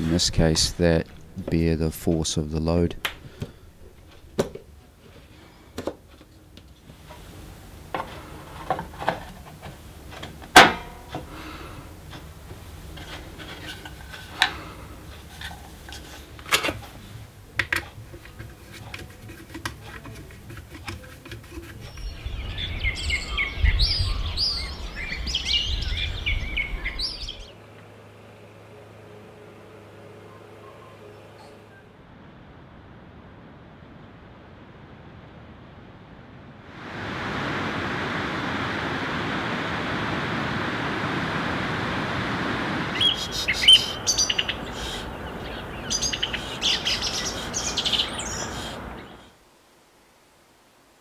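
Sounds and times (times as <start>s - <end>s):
small birds chirping: 21.8s - 27.6s, 42.9s - 49.4s.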